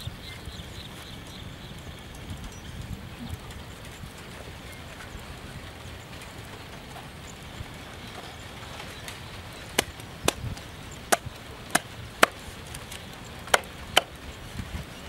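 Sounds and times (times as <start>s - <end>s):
cleaver chopping on wooden block: 11.1s - 12.4s, 13.5s - 14.1s.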